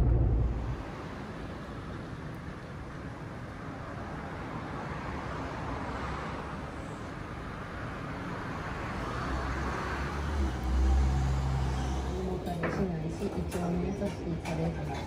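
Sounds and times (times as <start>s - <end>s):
vehicle engine rumble passing: 0.0s - 2.4s, 9.1s - 12.5s
street traffic noise: 0.0s - 15.0s.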